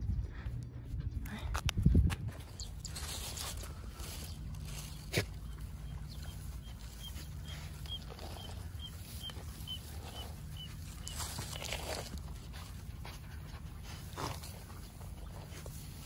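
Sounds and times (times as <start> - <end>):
dogs sniffing: 2.4 - 16.0
grass rustling: 2.4 - 16.0
bird chirping: 2.5 - 12.1.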